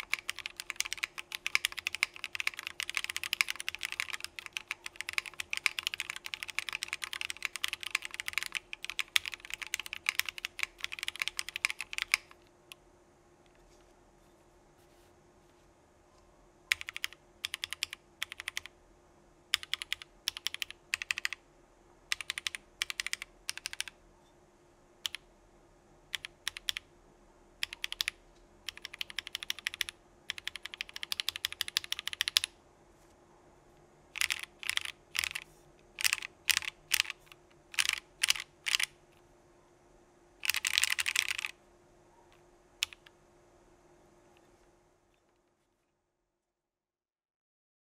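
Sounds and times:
mechanical keyboard typing: 0:00.0 - 0:12.4, 0:16.7 - 0:18.7, 0:19.5 - 0:21.4, 0:22.1 - 0:24.0, 0:25.0 - 0:25.2, 0:26.1 - 0:26.9, 0:27.6 - 0:32.5, 0:34.1 - 0:38.9, 0:40.4 - 0:41.6, 0:42.8 - 0:43.1.

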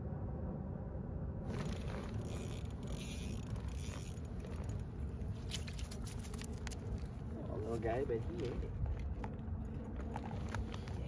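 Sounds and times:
steady low rumble: 0:00.0 - 0:11.0
fishing reel ratcheting whirr: 0:01.5 - 0:04.8.

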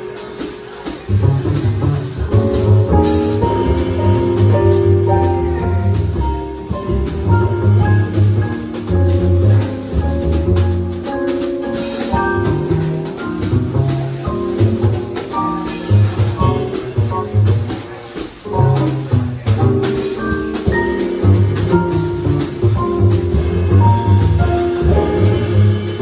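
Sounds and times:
piano notes and chords: 0:00.0 - 0:26.0
plucked upright bass: 0:00.0 - 0:26.0.

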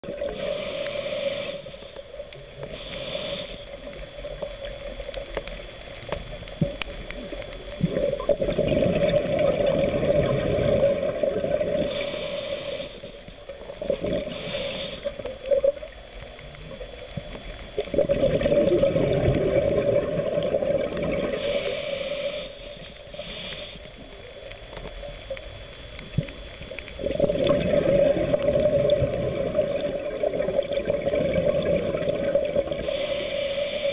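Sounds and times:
regulator hissing inhalations: 0:00.3 - 0:03.9, 0:11.8 - 0:13.4, 0:14.2 - 0:15.3, 0:21.2 - 0:24.1, 0:32.8 - 0:33.9
bubbling exhalations: 0:07.8 - 0:12.0, 0:17.9 - 0:21.4, 0:27.0 - 0:33.0.

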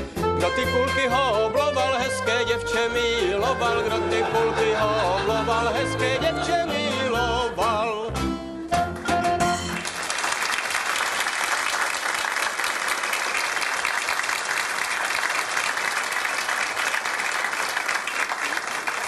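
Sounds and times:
small band playing: 0:00.0 - 0:10.1
audience applauding: 0:09.5 - 0:19.0.

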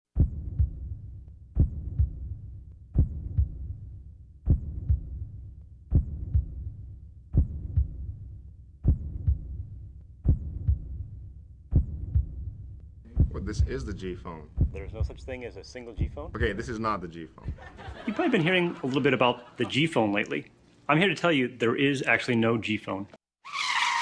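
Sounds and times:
heartbeat double thumps: 0:00.1 - 0:18.1.

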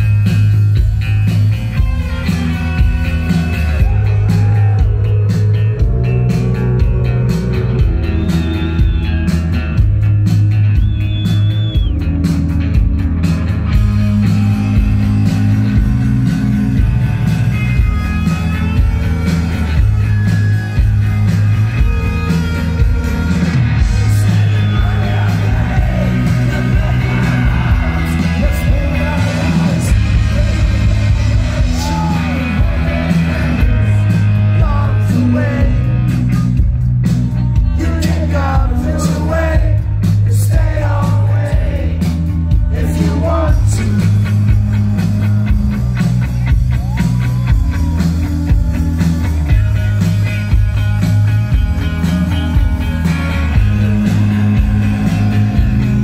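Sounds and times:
bass guitar: 0:00.0 - 0:56.0
drums: 0:00.0 - 0:56.0
electric guitars: 0:00.0 - 0:56.0
man singing lead vocal: 0:23.8 - 0:36.5, 0:37.5 - 0:44.4.

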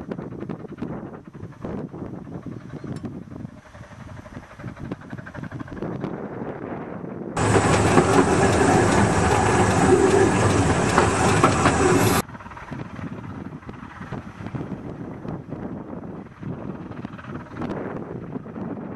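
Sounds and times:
wind on microphone: 0:00.0 - 0:18.9
steam locomotive running: 0:07.4 - 0:12.7
distant train: 0:07.4 - 0:15.5.

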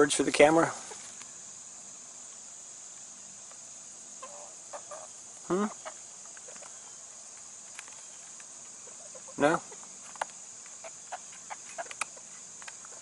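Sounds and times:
insects chirring: 0:00.0 - 0:13.0
chickens clucking: 0:00.5 - 0:01.2, 0:04.2 - 0:13.0.

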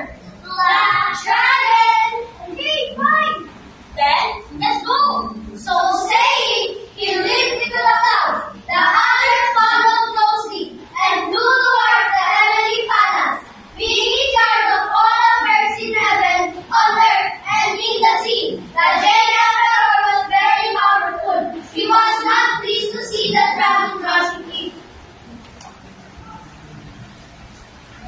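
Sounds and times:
children singing in unison: 0:04.5 - 0:24.7.

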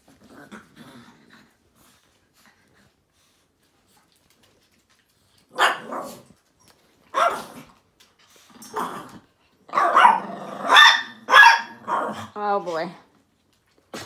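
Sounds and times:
small dogs barking: 0:05.5 - 0:06.3, 0:07.1 - 0:07.7, 0:09.7 - 0:12.3.

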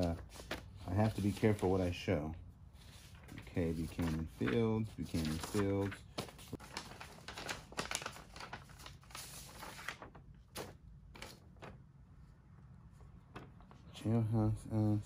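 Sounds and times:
paper rustling and crinkling: 0:00.0 - 0:02.1, 0:02.8 - 0:11.9, 0:13.2 - 0:14.0.

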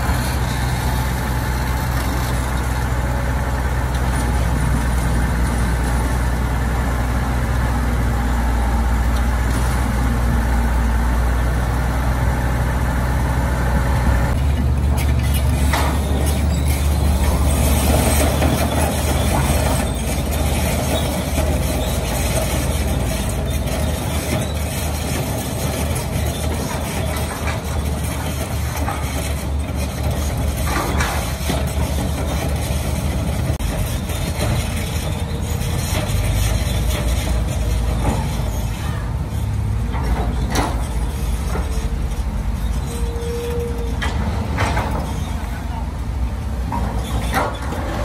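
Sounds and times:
diesel engine running: 0:00.0 - 0:48.0
knocks and clanks: 0:14.4 - 0:39.0, 0:39.8 - 0:41.9, 0:43.8 - 0:45.4.

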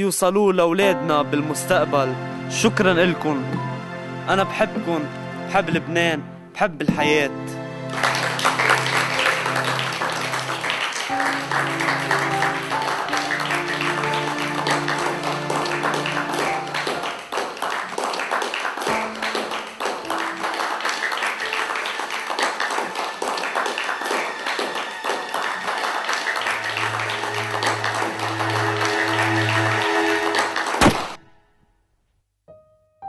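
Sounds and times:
film score music: 0:00.0 - 0:31.6
audience clapping: 0:07.9 - 0:31.2.

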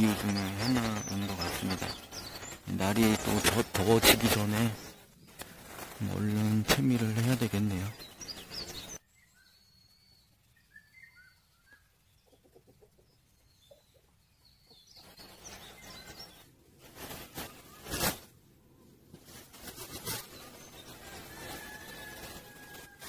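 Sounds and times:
rustling: 0:00.0 - 0:09.0, 0:14.9 - 0:23.0
faint bird chirps: 0:00.0 - 0:23.0.

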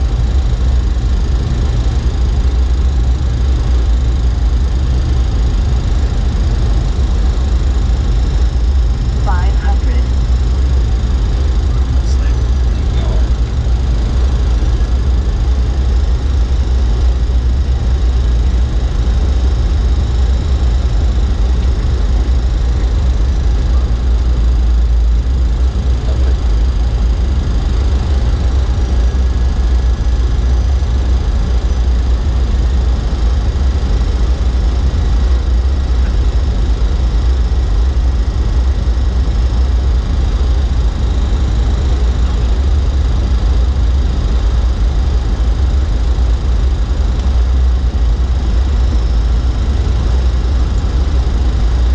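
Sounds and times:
cockpit airflow and engine rumble: 0:00.0 - 0:51.9.

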